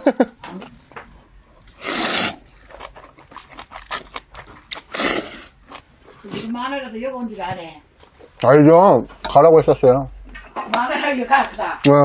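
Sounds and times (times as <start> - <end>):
quiet chewing: 0.4 - 6.5
person slurping noodles: 1.7 - 4.1, 4.7 - 5.6.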